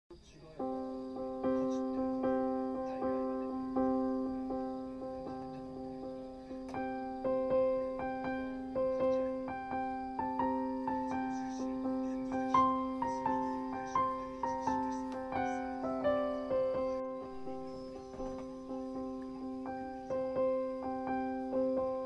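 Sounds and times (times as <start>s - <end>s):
gentle piano-like keyboard melody: 0.1s - 22.0s.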